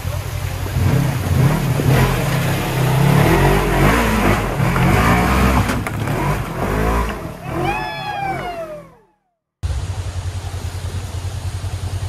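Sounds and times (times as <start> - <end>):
off-road vehicle engine revving: 0.0 - 9.0.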